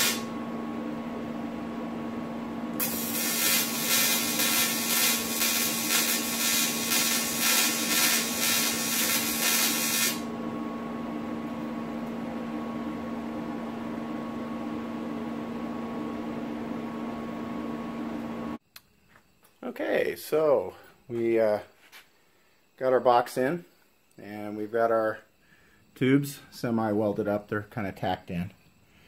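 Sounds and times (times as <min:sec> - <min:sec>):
welding arc sizzling and crackling: 0:00.0 - 0:00.3, 0:02.8 - 0:10.3
electrical hum: 0:00.0 - 0:18.7.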